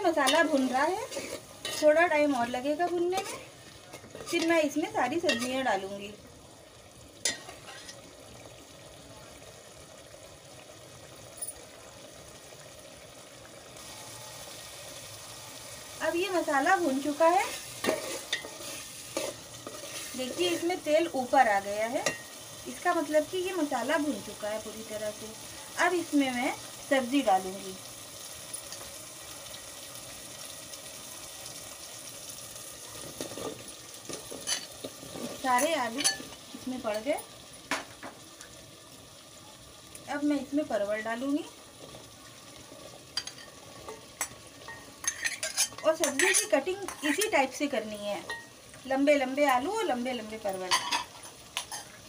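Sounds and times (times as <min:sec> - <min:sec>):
food sizzling in oil: 0:00.0 - 0:52.0
spoon clinking against pan: 0:35.6 - 0:36.3, 0:44.2 - 0:47.4.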